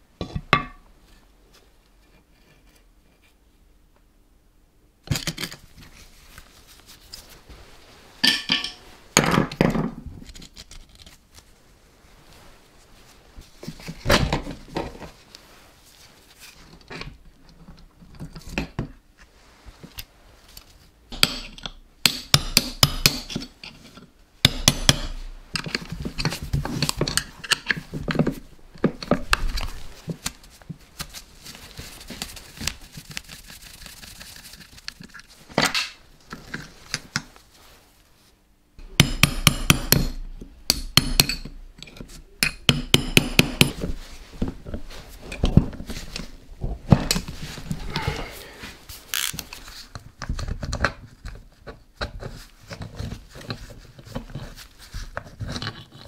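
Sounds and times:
steel parts clinking: 8.2 - 8.8.

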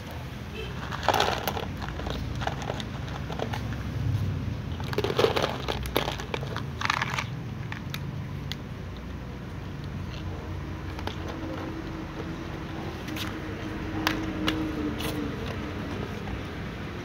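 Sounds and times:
kibble rattling into plastic bowls: 0.7 - 3.8, 4.6 - 8.1, 10.1 - 12.4
cats crunching dry food: 0.7 - 16.5.

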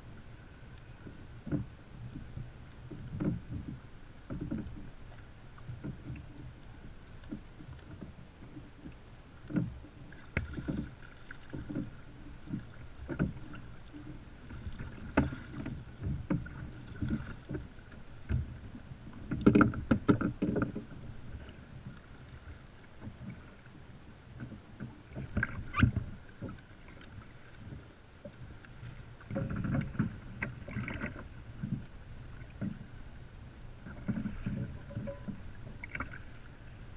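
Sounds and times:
water slapping against kayak hull: 0.9 - 36.9
knocks and thumps on hull: 1.0 - 6.5, 7.2 - 21.6, 29.2 - 32.9, 33.8 - 36.4.

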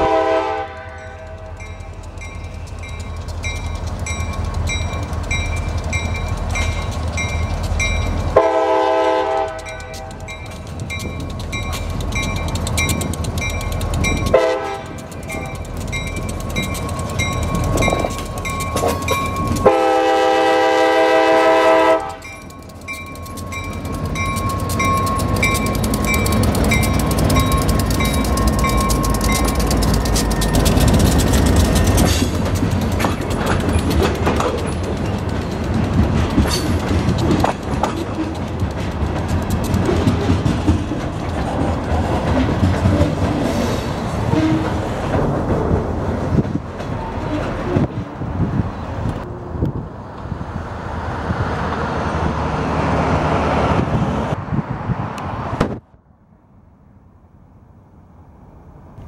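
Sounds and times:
train wheels clicking and clanking: 0.0 - 49.3
diesel locomotives rumbling: 0.0 - 59.0
locomotive bell ringing: 0.7 - 8.6, 9.2 - 20.8, 21.7 - 36.9
sharp clicks: 9.4 - 19.6
wheel squeals: 22.1 - 38.5.

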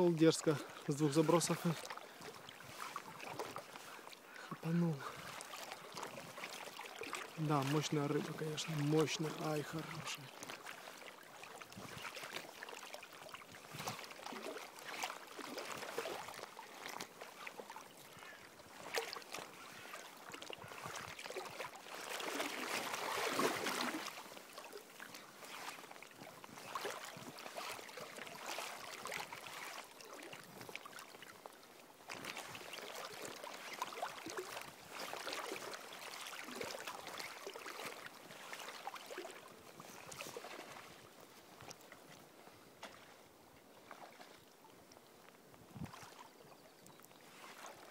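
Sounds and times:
river water splashing and lapping: 0.0 - 47.9.

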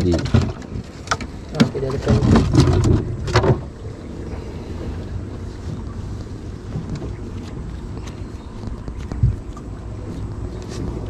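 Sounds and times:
knocks and rustling: 0.0 - 3.8
boat engine low rumble: 0.0 - 11.0
wind buffeting microphone: 0.0 - 11.0.

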